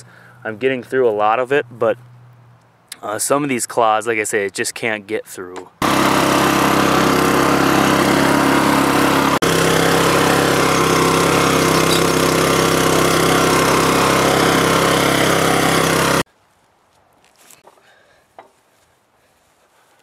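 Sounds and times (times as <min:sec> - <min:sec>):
garden tiller engine running: 0:05.8 - 0:16.3.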